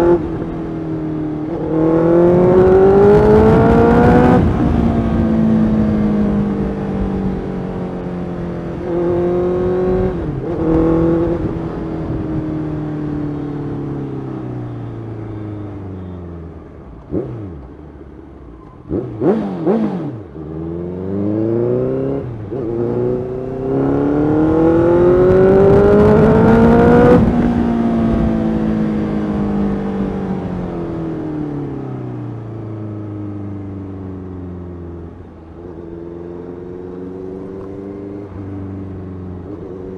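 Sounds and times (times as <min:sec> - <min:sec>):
motorcycle engine revving: 0:01.4 - 0:14.1, 0:18.8 - 0:31.6.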